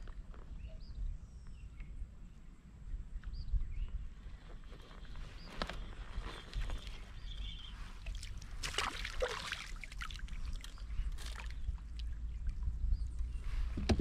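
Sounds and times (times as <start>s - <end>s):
low wind rumble on microphone: 0.0s - 8.6s, 10.0s - 14.0s
water splashing and sloshing: 5.6s - 12.7s.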